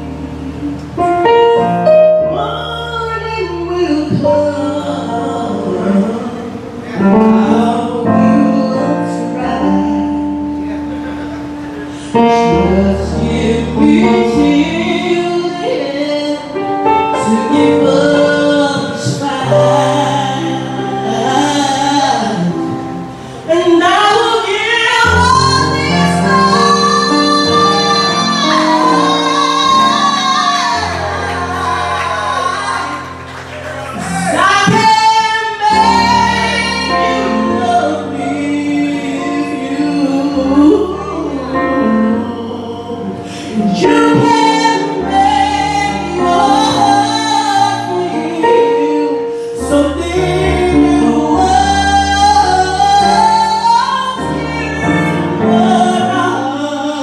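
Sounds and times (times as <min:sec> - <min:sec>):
woman singing into a microphone: 0:00.0 - 0:10.6, 0:11.8 - 0:33.2, 0:34.0 - 0:57.0
backing band: 0:25.1 - 0:48.7.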